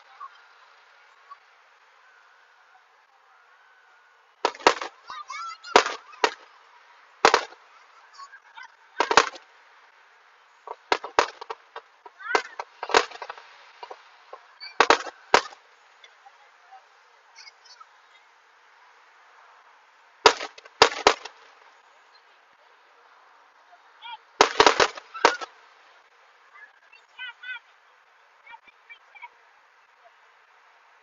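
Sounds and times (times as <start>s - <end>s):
firework shells bursting: 14.8s - 15.6s, 24.4s - 25.5s.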